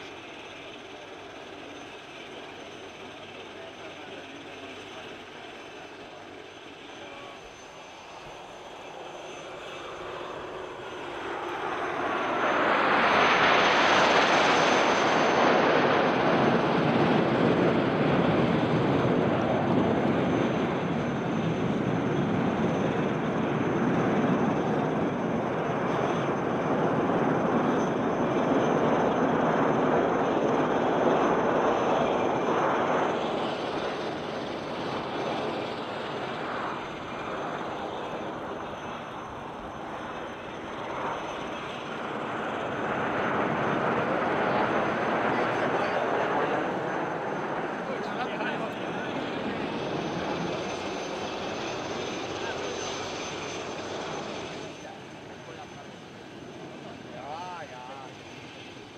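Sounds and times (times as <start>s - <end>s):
jets flying past: 7.2s - 58.9s.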